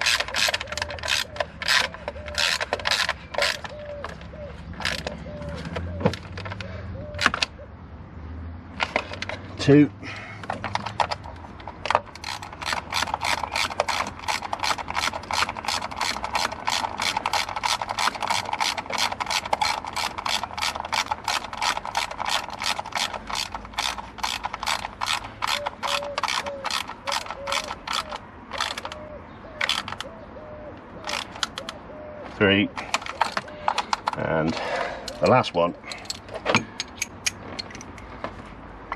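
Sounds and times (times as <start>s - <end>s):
hand ratchet clicking: 0.0s - 4.2s, 4.8s - 5.1s, 10.5s - 29.0s, 29.6s - 30.1s, 31.0s - 31.8s, 32.8s - 35.3s, 35.9s - 38.0s.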